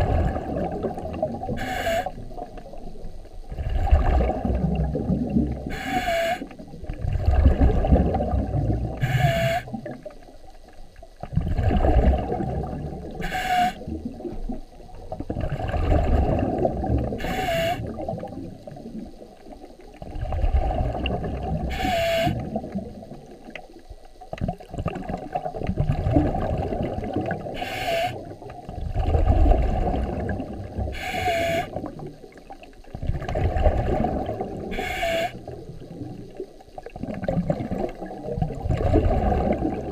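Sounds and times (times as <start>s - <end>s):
regulator hissing inhale: 27.6s - 28.2s, 30.9s - 31.7s, 34.7s - 35.4s
bubbling exhale: 37.0s - 39.9s.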